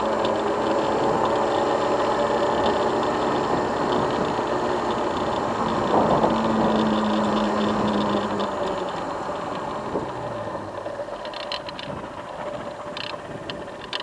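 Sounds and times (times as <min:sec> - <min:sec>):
light rattling ticks: 0:00.0 - 0:14.0
motorcycle engine slowing down: 0:00.0 - 0:14.0.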